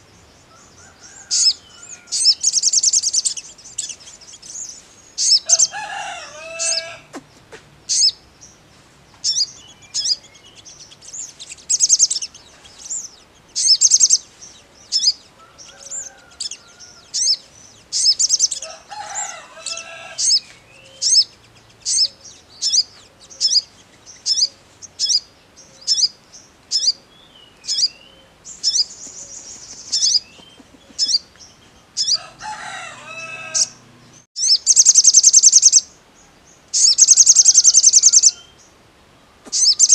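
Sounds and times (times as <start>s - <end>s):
sunbird high chirps: 0.0s - 7.2s, 7.8s - 38.8s, 39.5s - 39.9s
bird fast trills: 0.8s - 7.1s, 7.9s - 8.2s, 9.2s - 27.0s, 27.6s - 31.3s, 32.0s - 35.9s, 36.8s - 38.4s, 39.6s - 39.9s
bird chattering phrases: 6.5s - 8.2s, 29.7s - 31.3s.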